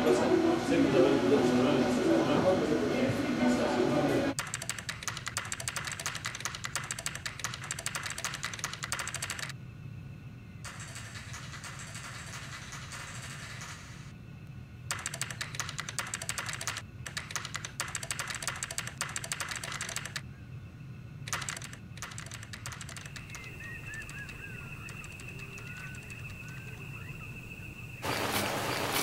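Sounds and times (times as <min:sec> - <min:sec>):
steady high tone: 0:00.0 - 0:04.4
computer keyboard typing: 0:04.4 - 0:09.5, 0:10.7 - 0:14.0, 0:14.9 - 0:20.2, 0:21.3 - 0:26.6.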